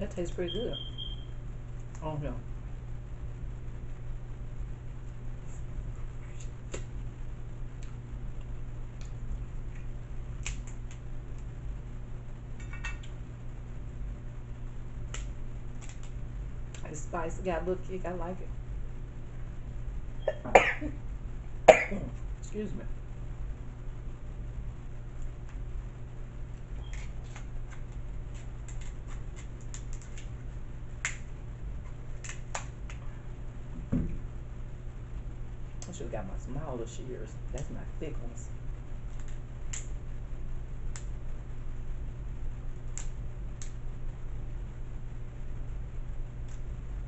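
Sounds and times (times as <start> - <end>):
steady low hum: 0.0 - 47.0
sharp clicks of crab shells: 10.4 - 11.0, 26.9 - 30.3, 31.0 - 31.3
shears snipping shells: 15.0 - 16.9, 26.8 - 30.4, 32.2 - 33.0.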